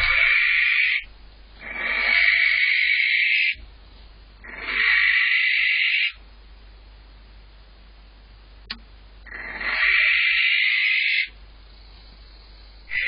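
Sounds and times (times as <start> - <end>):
barn owl screeching: 0.0 - 3.6, 4.4 - 6.2, 9.3 - 11.4.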